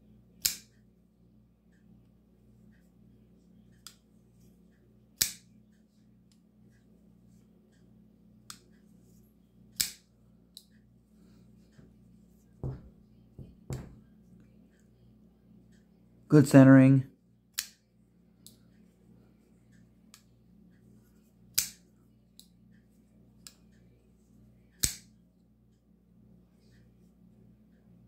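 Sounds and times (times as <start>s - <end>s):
knife blade clicks: 9.8s - 10.0s, 24.8s - 25.1s.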